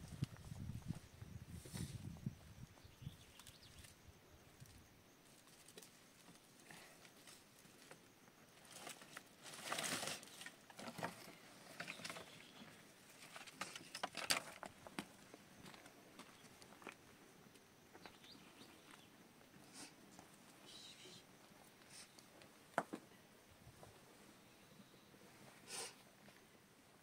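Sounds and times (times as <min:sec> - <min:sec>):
firewood sticks rustling and knocking: 0:08.7 - 0:12.4, 0:13.2 - 0:15.1.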